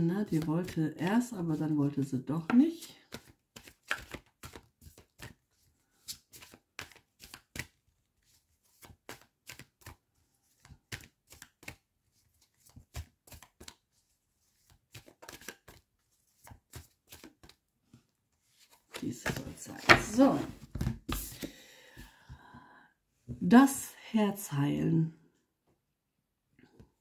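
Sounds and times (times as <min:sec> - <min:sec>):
cards being shuffled: 0:00.2 - 0:00.8, 0:02.4 - 0:17.6, 0:18.4 - 0:22.1.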